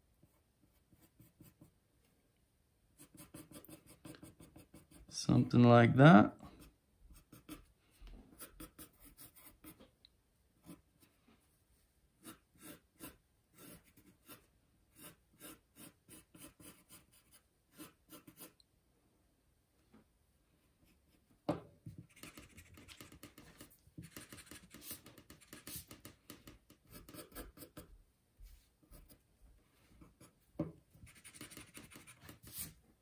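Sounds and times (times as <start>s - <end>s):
pencil sketching on paper: 0.2s - 1.7s, 3.0s - 5.1s, 6.6s - 9.8s, 12.2s - 18.6s, 22.0s - 27.9s, 31.0s - 32.8s.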